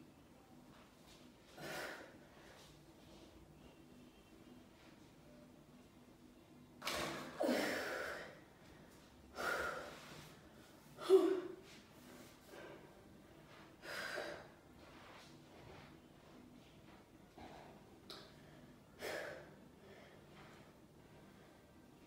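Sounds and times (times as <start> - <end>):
woman breathing heavily: 7.4 - 14.9, 17.3 - 22.0.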